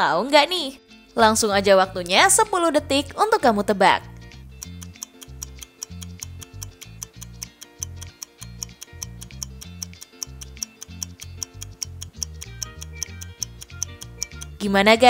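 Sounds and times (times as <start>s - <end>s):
background music with bass line: 0.8s - 15.0s
fast timer ticking: 4.2s - 15.0s.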